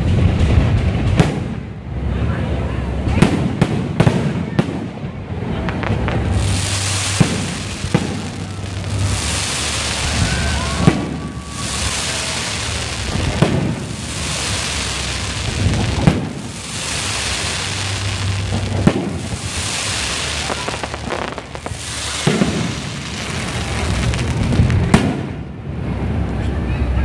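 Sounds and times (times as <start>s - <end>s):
crackling hiss of firework trails: 0.0s - 26.7s
firework shells bursting: 5.6s - 25.5s.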